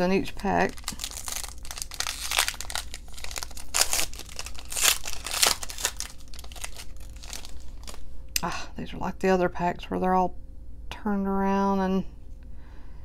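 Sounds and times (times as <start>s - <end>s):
foil wrapper crinkling and tearing: 0.3s - 8.1s.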